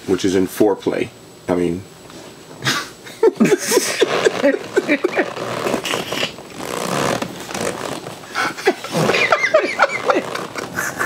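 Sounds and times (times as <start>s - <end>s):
man and woman laughing: 2.6s - 6.3s, 8.3s - 11.0s.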